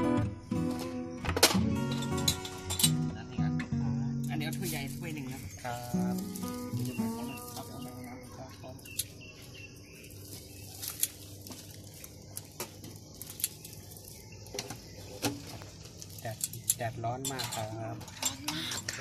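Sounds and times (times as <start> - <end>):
low street background: 0.0 - 19.0
metal scoop clicking on steel tub: 16.2 - 19.0.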